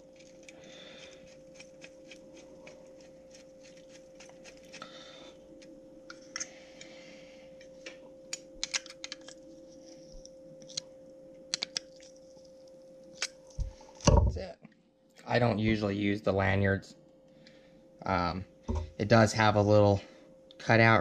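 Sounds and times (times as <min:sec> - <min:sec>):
faint steady hum: 0:00.0 - 0:21.0
clicks of small parts handled: 0:08.3 - 0:09.4.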